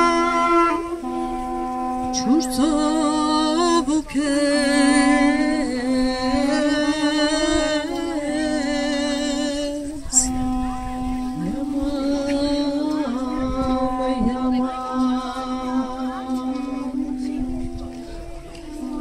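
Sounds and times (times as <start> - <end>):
duduk ensemble slow melody: 0.0 - 19.0
held drone note: 0.0 - 19.0.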